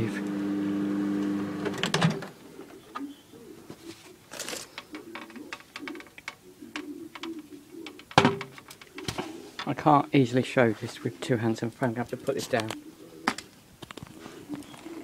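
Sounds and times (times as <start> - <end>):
microwave oven humming: 0.0 - 1.9.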